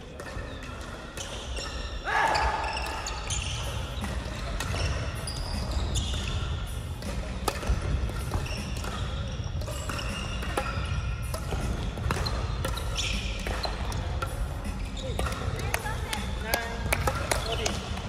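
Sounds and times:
echoing hubbub of hall: 0:00.0 - 0:18.0
shoes squeaking on gym floor: 0:00.1 - 0:06.7, 0:08.1 - 0:11.3, 0:12.2 - 0:14.0, 0:14.6 - 0:15.7
racket hits: 0:02.9 - 0:18.0.

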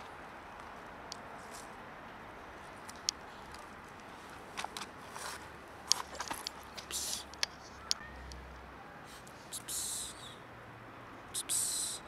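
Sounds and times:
faint outdoor background: 0:00.0 - 0:12.0
dry crackles and rustles: 0:02.6 - 0:08.1.

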